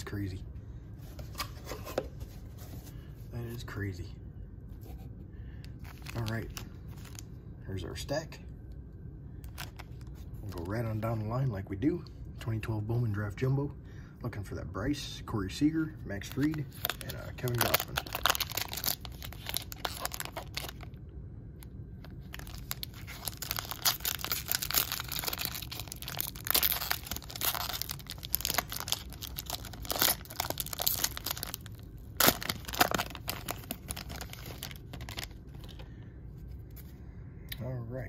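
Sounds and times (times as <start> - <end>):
foil wrapper tearing and crinkling: 16.3 - 20.9, 22.2 - 35.8.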